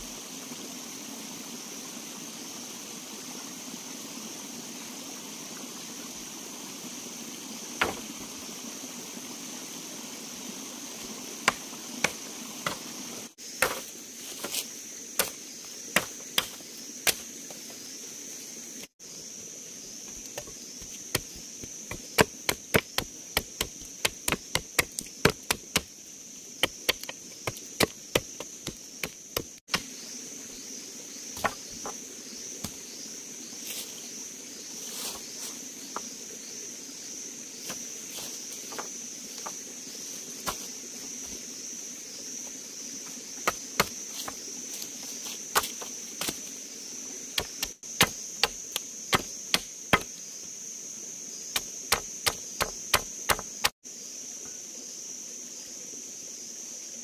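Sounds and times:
high insect drone: 0.0s - 57.0s
machete chopping wooden stick: 7.8s - 8.2s, 11.5s - 12.9s, 13.6s - 14.6s, 15.2s - 15.4s, 16.0s - 17.2s, 20.3s - 25.9s, 26.6s - 29.9s, 31.4s - 32.0s, 43.4s - 44.4s, 45.5s - 46.4s, 47.4s - 50.2s, 51.6s - 53.7s.

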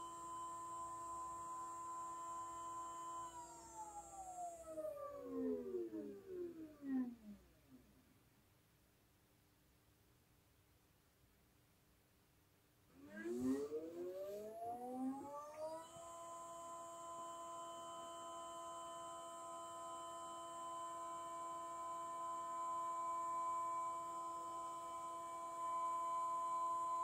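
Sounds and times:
stepper motors whining: 2.5s - 7.3s, 13.0s - 17.6s.

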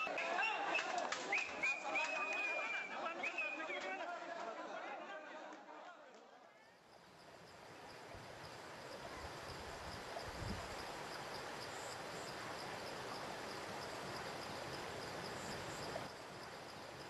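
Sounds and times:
insects chirping: 6.6s - 17.0s.

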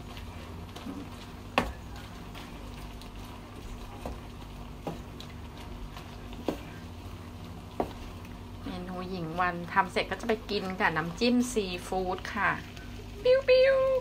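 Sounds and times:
faint sizzle: 0.0s - 14.0s
steady hum: 0.0s - 14.0s
wooden spatula knocking on pan: 1.5s - 1.9s, 7.8s - 8.1s.

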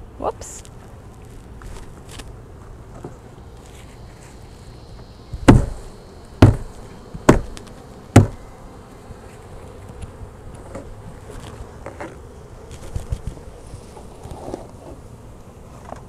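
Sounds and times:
honeybees buzzing: 0.0s - 16.0s
knocks on plastic box: 5.5s - 5.8s, 8.2s - 8.4s.

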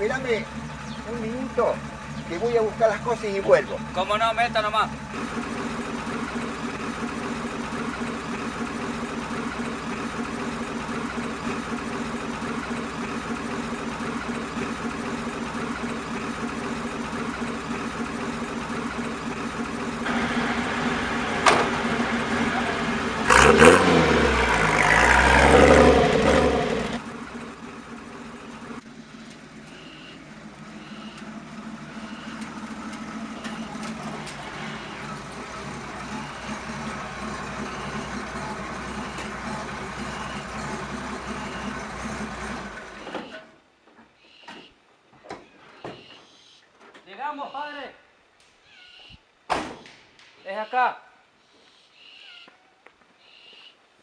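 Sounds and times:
truck engine idling and revving: 0.0s - 43.5s
door shutting: 21.4s - 21.8s.

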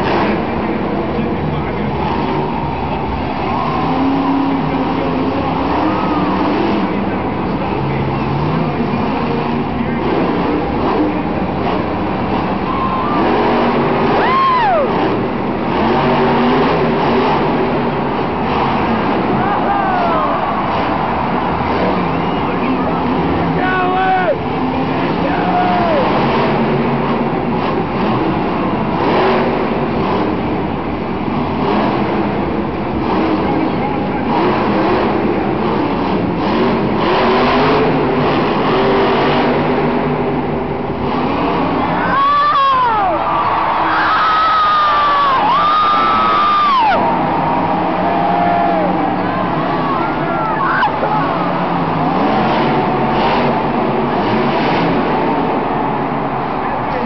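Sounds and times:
crowd din: 0.0s - 57.0s
truck engine revving: 0.0s - 57.0s
shrill whoop: 14.2s - 14.9s, 42.0s - 47.1s.

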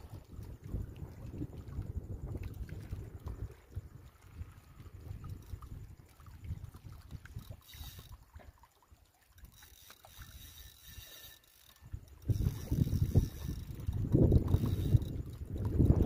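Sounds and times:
wind rumbling on microphone: 0.0s - 8.5s, 11.7s - 16.0s
water lapping against rocks: 0.0s - 16.0s.

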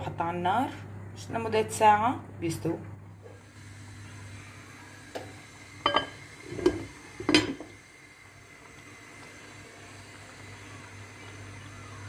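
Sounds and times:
pot lid clinking: 5.8s - 7.6s.

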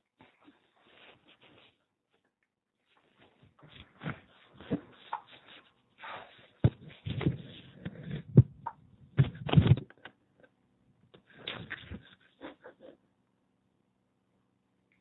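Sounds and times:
rustling handling noises: 0.0s - 8.3s.

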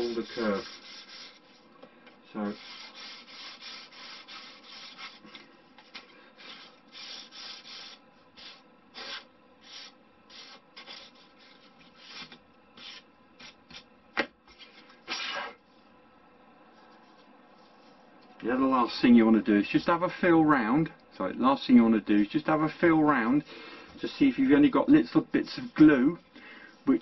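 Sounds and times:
sanding block rubbing wood: 0.0s - 1.6s, 2.4s - 13.8s.

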